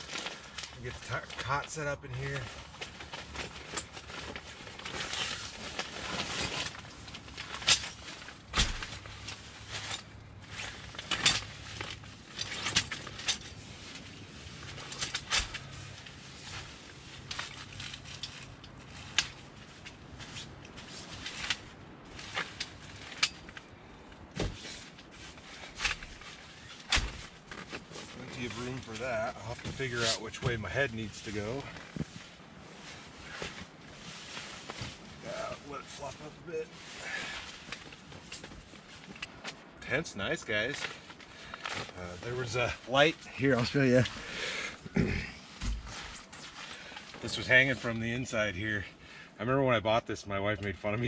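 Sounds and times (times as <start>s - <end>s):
fabric rustling: 2.3s - 39.8s.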